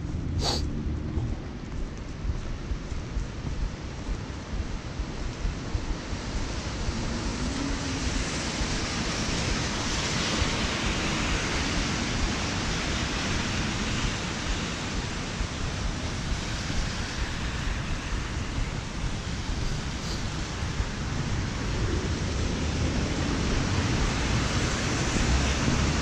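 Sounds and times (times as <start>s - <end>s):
low traffic rumble: 0.0s - 26.0s
tyres hissing through water: 0.4s - 0.6s
rain on an umbrella: 5.5s - 22.4s.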